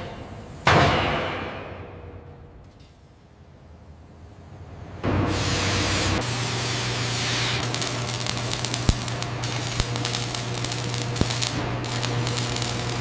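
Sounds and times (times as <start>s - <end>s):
low electrical hum: 1.6s - 13.0s
arc welding hiss and crackle: 5.3s - 13.0s
sharp welding pops: 6.5s - 13.0s.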